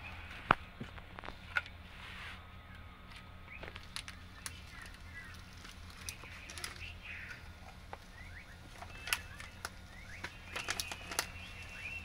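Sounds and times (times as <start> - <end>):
steady low hum: 0.0 - 12.0
sharp plastic clicks: 8.7 - 11.7.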